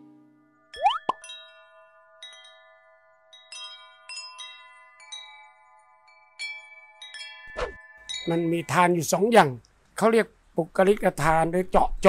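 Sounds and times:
metal wind chimes ringing: 0.6s - 9.6s.

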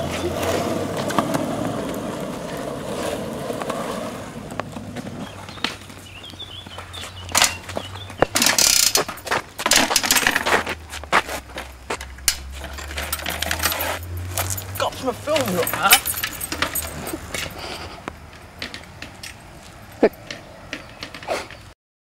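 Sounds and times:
skateboard wheels rolling on asphalt: 0.0s - 21.8s
metallic clicks and rattles of bicycle: 7.3s - 10.7s, 11.9s - 21.7s.

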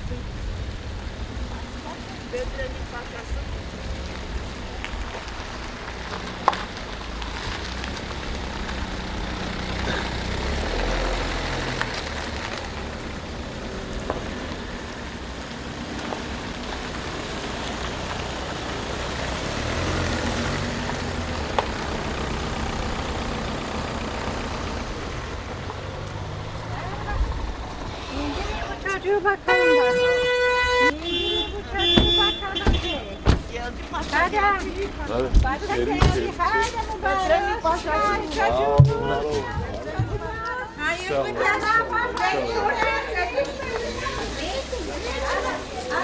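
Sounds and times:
car engines idling: 0.0s - 46.0s
tyre noise on wet road: 0.0s - 46.0s.

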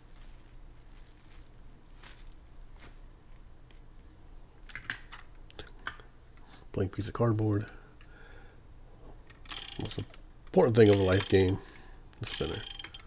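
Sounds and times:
plastic bags rustling and crinkling: 0.0s - 4.2s.

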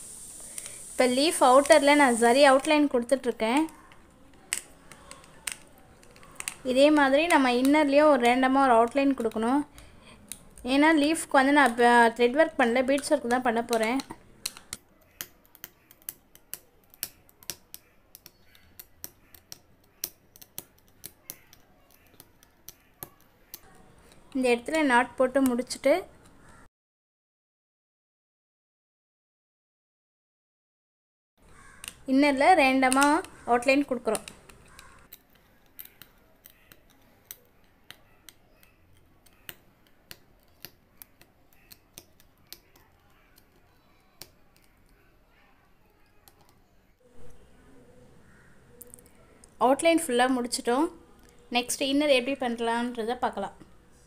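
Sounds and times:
needle clicking through fabric: 31.6s - 45.0s.

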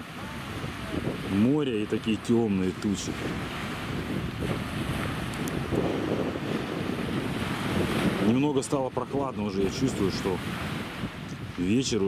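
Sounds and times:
wind across microphone: 0.0s - 12.0s.

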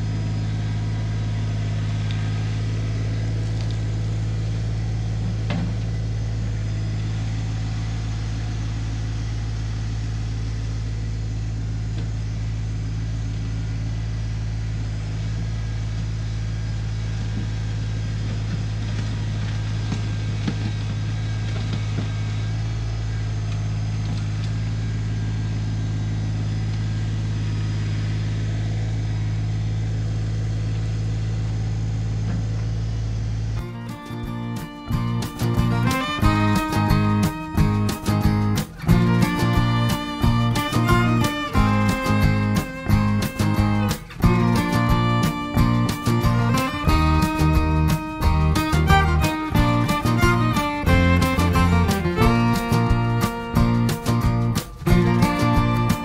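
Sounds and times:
tractor diesel engine running: 0.0s - 56.0s.

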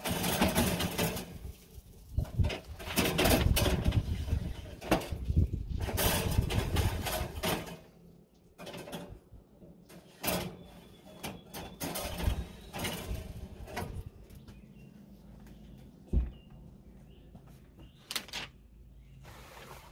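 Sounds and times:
wire racks rattling and scraping: 0.0s - 14.7s.

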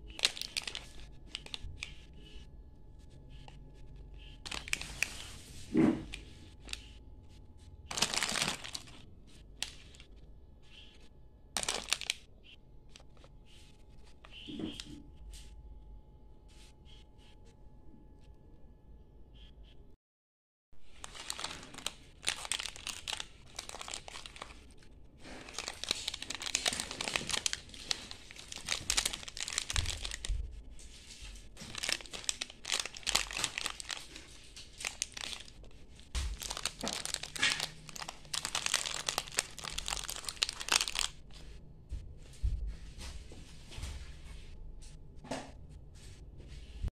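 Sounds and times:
plastic wrappers crinkling: 0.0s - 2.4s, 4.2s - 7.0s, 7.8s - 11.0s, 11.6s - 13.3s, 20.8s - 41.4s
wrapper tearing: 0.1s - 2.0s, 4.4s - 6.9s, 7.9s - 10.1s, 11.6s - 12.2s, 20.8s - 41.2s.

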